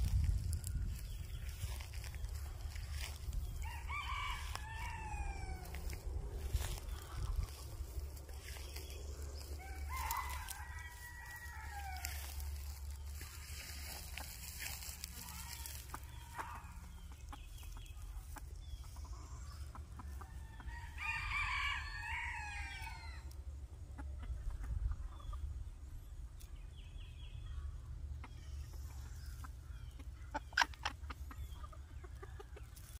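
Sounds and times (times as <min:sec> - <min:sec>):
rooster crowing: 0:02.9 - 0:06.0, 0:09.4 - 0:12.4, 0:20.4 - 0:23.3.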